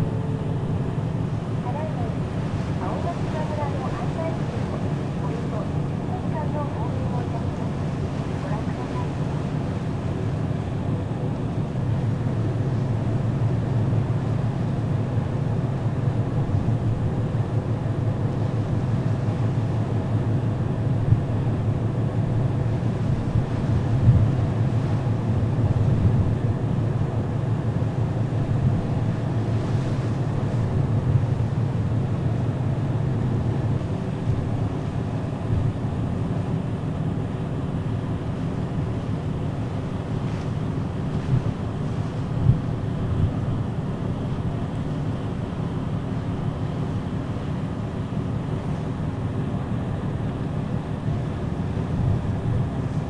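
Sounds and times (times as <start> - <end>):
ferry engines droning: 0.0 - 53.0
hiss of wind and sea: 0.0 - 53.0
wind on microphone: 20.8 - 27.0, 40.2 - 43.8, 51.3 - 53.0.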